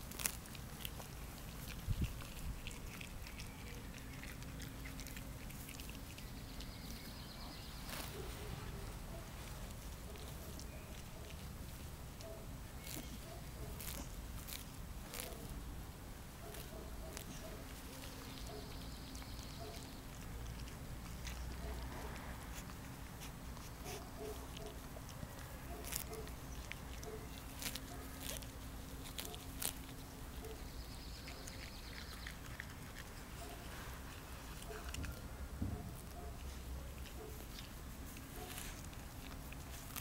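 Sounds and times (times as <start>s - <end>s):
grass being torn off: 0.0s - 3.3s, 7.8s - 8.4s, 12.8s - 15.7s, 21.0s - 30.5s, 37.0s - 40.0s
dogs chewing: 0.0s - 40.0s.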